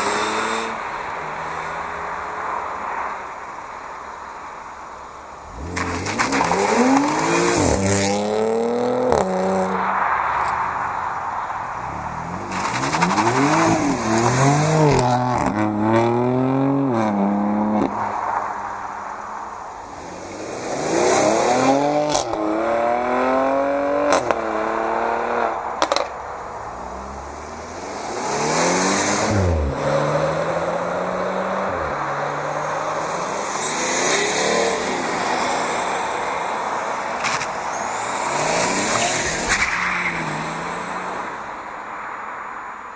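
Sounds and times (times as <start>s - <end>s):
cars accelerating hard: 0.0s - 3.6s, 5.1s - 42.9s
sharp cracks on gear shifts: 25.7s - 27.0s, 36.9s - 40.4s.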